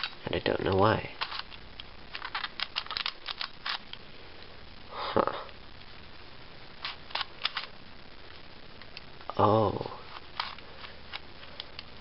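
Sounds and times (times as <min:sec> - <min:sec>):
plastic puzzle clicking: 0:00.0 - 0:03.8.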